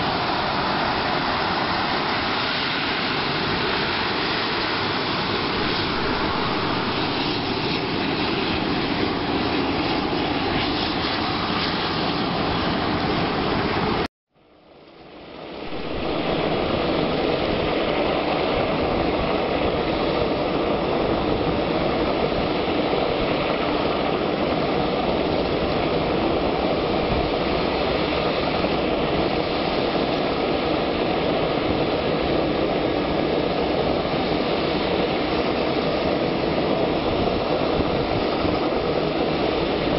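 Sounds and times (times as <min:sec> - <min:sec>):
jet engines taxiing: 0:00.0 - 0:14.1, 0:14.8 - 0:39.9.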